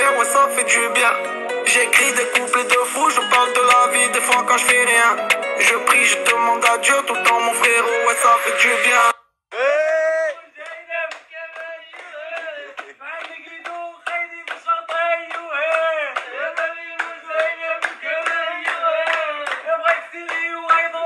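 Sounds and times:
person singing: 0.0 - 21.0
group clapping in rhythm: 1.9 - 7.8, 10.6 - 21.0.

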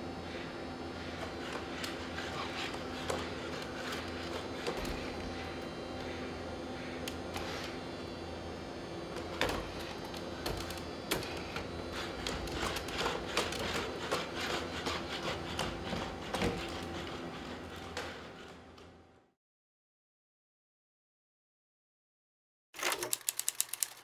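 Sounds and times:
robot steady hum: 0.0 - 18.0.

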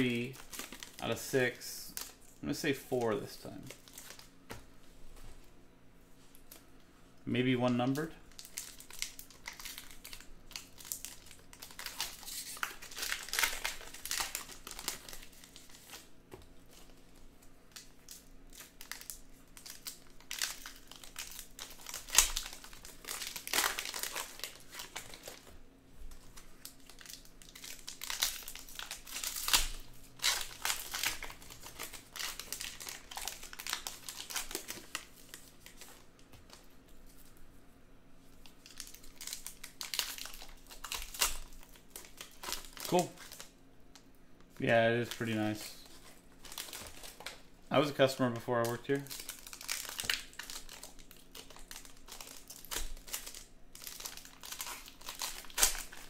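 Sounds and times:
plastic wrapper tearing and crinkling: 0.0 - 4.3, 7.5 - 16.1, 16.7 - 36.7, 38.3 - 56.0
sharp plastic crack: 48.6 - 56.0.

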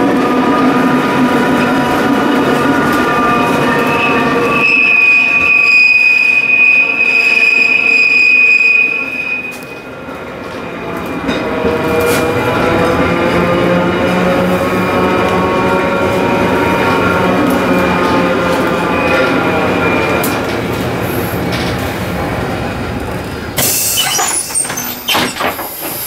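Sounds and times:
tram running on rails: 0.0 - 26.0
high wheel squeal: 3.0 - 9.8, 23.6 - 26.0.

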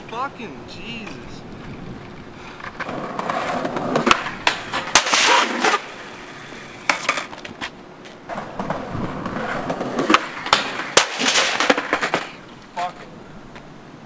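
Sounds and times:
skateboard wheels rolling on asphalt: 0.0 - 14.0
skateboard clacks and knocks: 2.6 - 5.8, 8.3 - 12.4.

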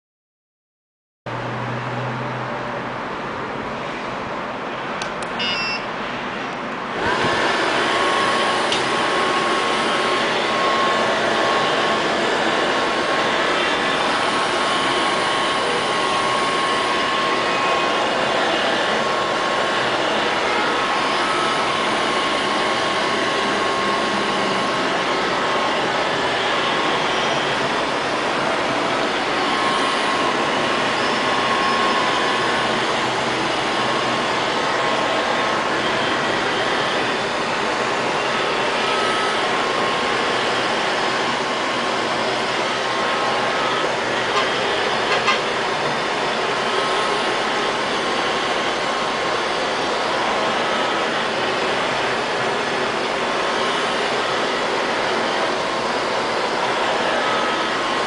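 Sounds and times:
vacuum suction motor whine: 5.0 - 58.0
robot vacuum beeping: 5.3 - 6.0, 29.0 - 41.4.

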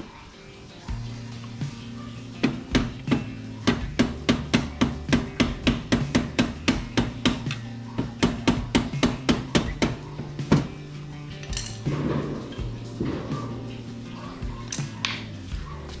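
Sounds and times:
faint background music: 0.0 - 16.0
hand tool clicking on metal: 2.4 - 10.7.

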